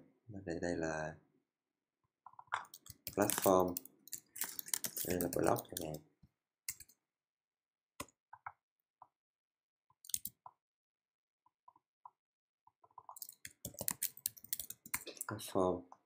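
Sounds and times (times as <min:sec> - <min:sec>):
keyboard typing: 0:02.6 - 0:06.0, 0:10.1 - 0:10.3, 0:13.1 - 0:15.4.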